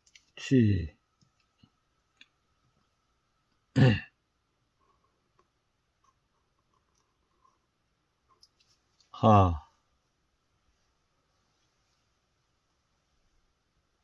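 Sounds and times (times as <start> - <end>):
person clearing throat: 3.7 - 4.2.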